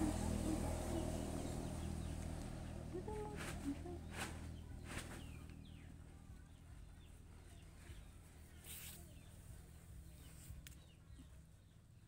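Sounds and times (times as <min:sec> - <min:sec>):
low hum: 0:00.0 - 0:08.5.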